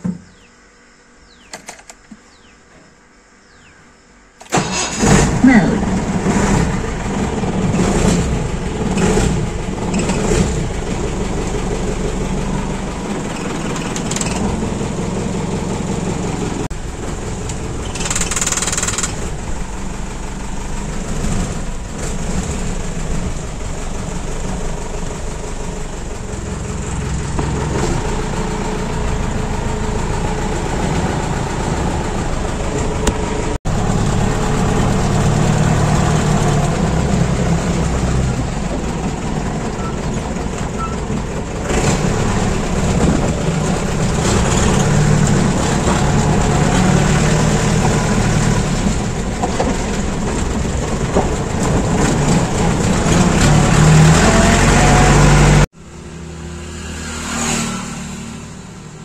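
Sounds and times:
jeep engine rumbling: 4.5s - 59.0s.

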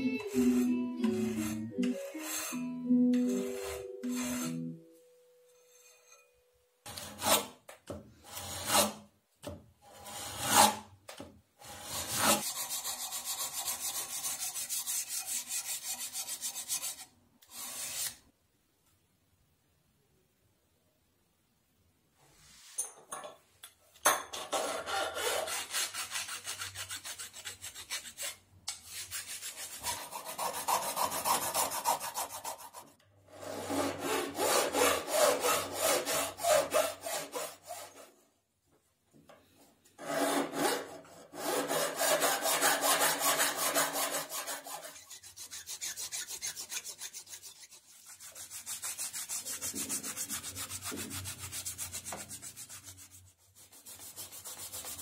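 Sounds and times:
hand file rasping on brass: 0.2s - 2.7s, 3.3s - 4.6s, 33.5s - 38.0s, 40.0s - 55.0s
abrasive paper scraping: 0.2s - 4.7s.

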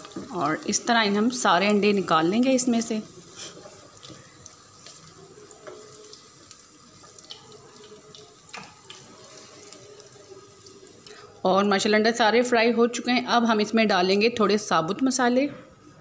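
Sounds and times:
oil sizzling in frying pan: 0.0s - 12.1s.

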